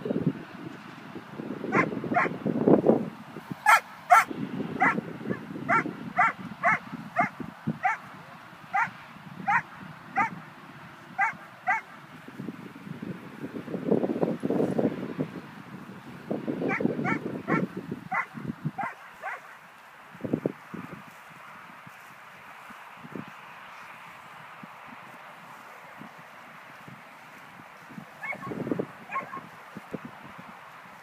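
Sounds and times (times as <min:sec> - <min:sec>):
dog high-pitched cries: 0:03.7 - 0:05.0, 0:05.7 - 0:08.0, 0:11.2 - 0:11.8, 0:28.2 - 0:29.5.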